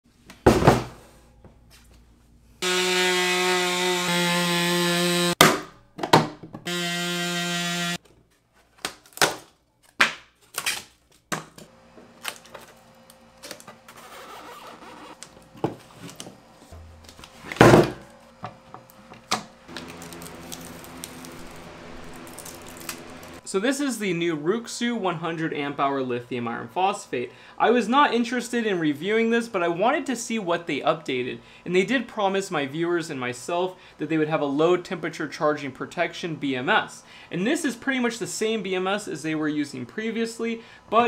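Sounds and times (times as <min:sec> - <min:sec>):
power tool cutting plastic: 0:02.6 - 0:05.4, 0:06.7 - 0:08.0, 0:19.7 - 0:23.4
low steady hum: 0:11.7 - 0:28.9.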